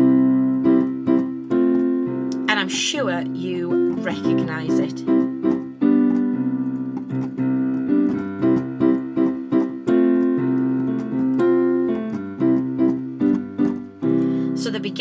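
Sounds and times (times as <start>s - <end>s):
piano accompaniment: 0.0s - 15.0s.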